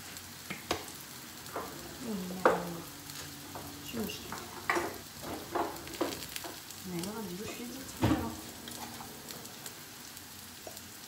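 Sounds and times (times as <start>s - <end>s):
vegetables sizzling in oil: 0.0s - 11.0s
sharp clicks and knocks: 0.5s - 6.7s.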